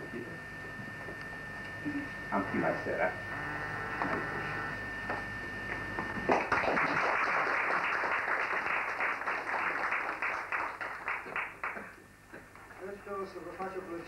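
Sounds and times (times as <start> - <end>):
audience applauding: 6.3 - 12.0.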